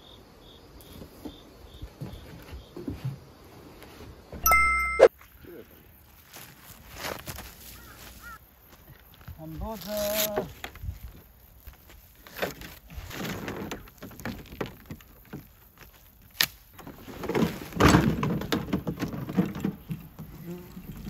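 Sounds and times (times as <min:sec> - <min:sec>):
plastic sheet rustling: 0:09.4 - 0:11.2.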